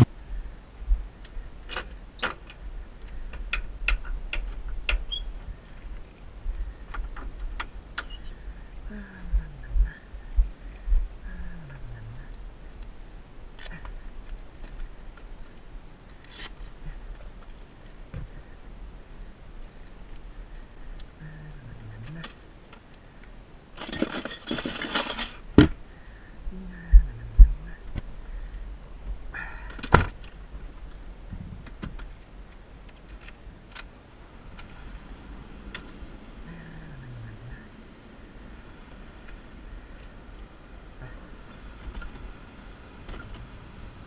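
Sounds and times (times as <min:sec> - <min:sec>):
low steady rumble: 0:00.0 - 0:44.0
low rumble: 0:03.7 - 0:15.1, 0:25.8 - 0:29.4.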